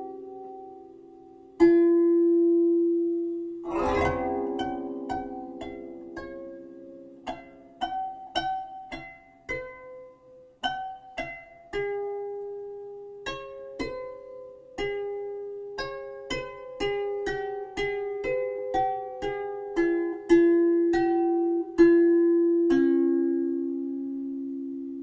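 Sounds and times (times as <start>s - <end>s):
plucked string melody: 0.0s - 25.0s
strummed chord: 3.6s - 7.5s.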